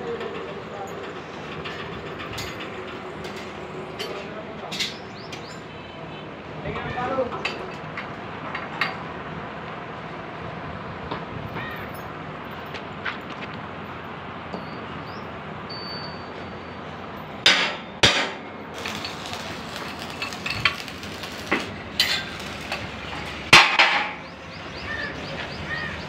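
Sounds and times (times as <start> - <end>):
steady background noise: 0.0 - 26.0
hammer clanking on steel: 17.4 - 22.9, 23.5 - 24.2.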